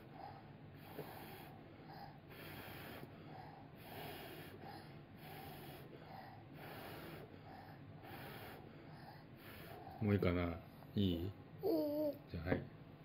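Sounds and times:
quiet breaths: 0:00.0 - 0:11.0
child blowing airy puffs: 0:02.3 - 0:09.9.

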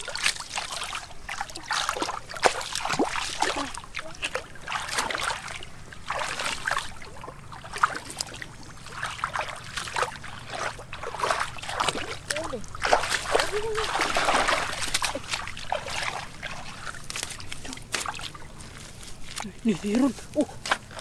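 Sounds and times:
feet wading through muddy water: 0:00.0 - 0:21.0.

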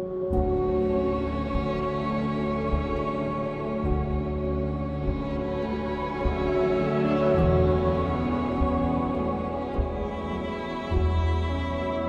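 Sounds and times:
music of long held notes: 0:00.0 - 0:12.0.

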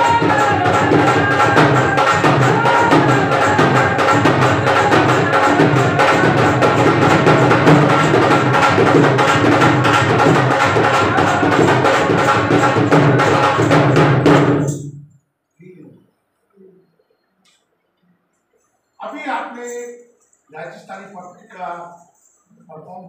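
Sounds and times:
fast hand-drum beat: 0:00.0 - 0:14.8
folk dance music: 0:00.0 - 0:14.8.

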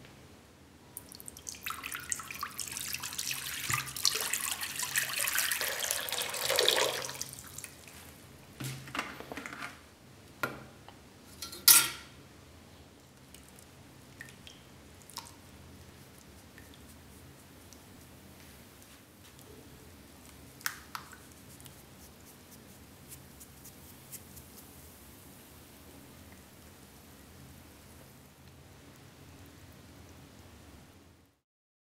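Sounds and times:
liquid pouring into a tray: 0:01.0 - 0:07.8
water dripping: 0:01.0 - 0:08.0, 0:13.2 - 0:17.0, 0:20.2 - 0:21.8
chemical bath fizzing: 0:01.0 - 0:08.2, 0:13.2 - 0:18.8, 0:20.2 - 0:25.1.

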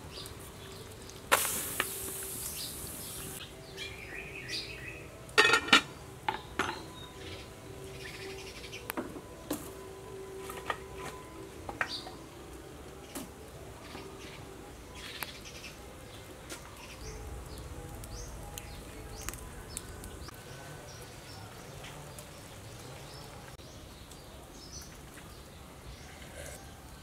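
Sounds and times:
small birds chirping: 0:00.0 - 0:05.2, 0:06.0 - 0:09.0, 0:11.8 - 0:12.2, 0:13.8 - 0:27.0
low steady rumble: 0:17.0 - 0:20.3.

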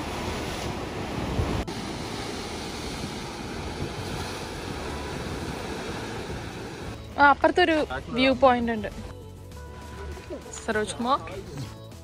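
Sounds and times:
ocean surf washing: 0:00.0 - 0:07.0
wind rumbling on microphone: 0:00.0 - 0:07.0.

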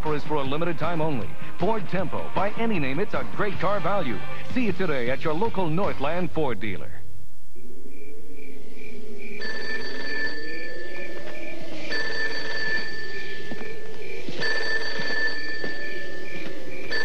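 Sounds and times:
telephone ringing: 0:09.4 - 0:17.0.

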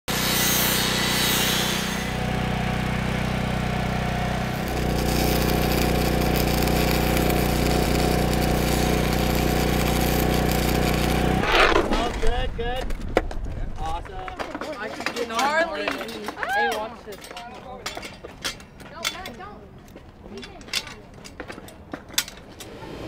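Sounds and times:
angle grinder cutting steel: 0:00.1 - 0:02.3, 0:04.4 - 0:11.8
mechanical drone of machinery: 0:00.1 - 0:13.0.

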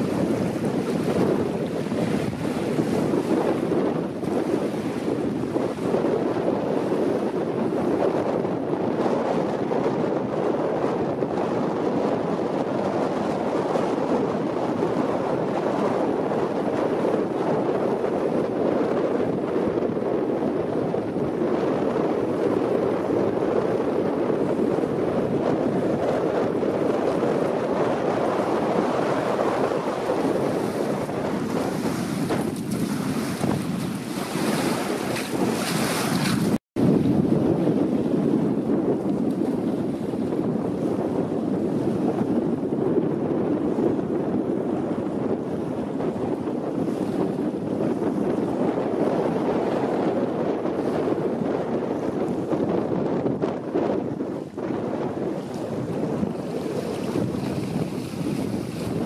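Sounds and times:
rushing wind: 0:00.0 - 0:59.0
splashing in shallow water: 0:29.8 - 0:36.6
waves lapping on pebbles: 0:31.7 - 0:36.6.

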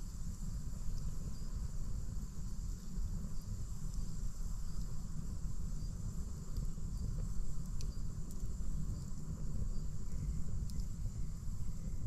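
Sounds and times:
insects chirring: 0:00.2 - 0:12.0
faint clicks: 0:06.5 - 0:08.5, 0:10.1 - 0:11.0.

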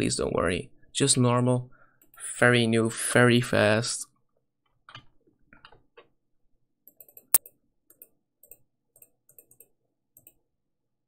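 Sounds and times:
computer mouse clicking: 0:06.9 - 0:10.4.

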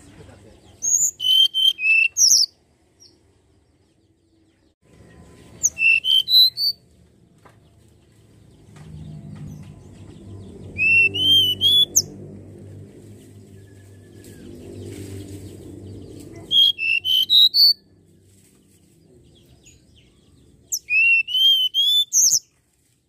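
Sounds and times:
bird singing whistled notes: 0:00.8 - 0:02.6, 0:05.6 - 0:06.8, 0:10.6 - 0:12.2, 0:16.4 - 0:17.8, 0:20.7 - 0:22.5.

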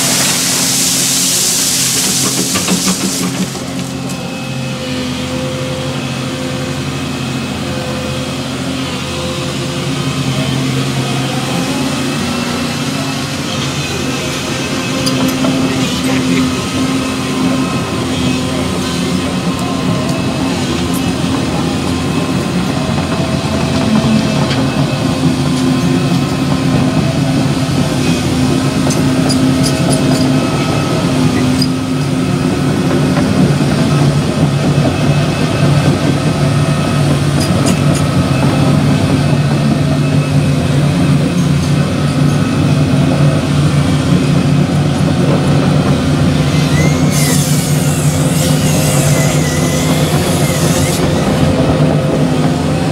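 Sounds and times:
excavator diesel engine running: 0:00.0 - 0:52.9.

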